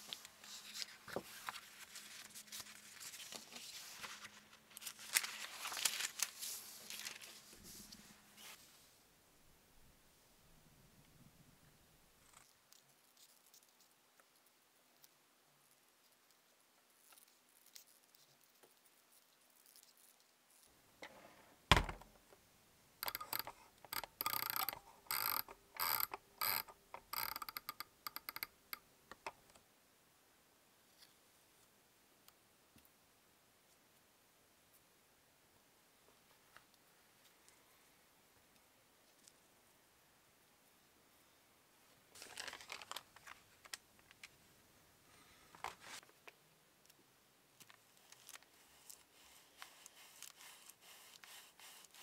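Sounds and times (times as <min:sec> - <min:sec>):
paper rustling and crinkling: 0:00.0 - 0:08.7, 0:42.1 - 0:44.4, 0:45.5 - 0:46.2
thump: 0:21.7 - 0:22.1
iron dial ratcheting clicks: 0:23.0 - 0:28.5.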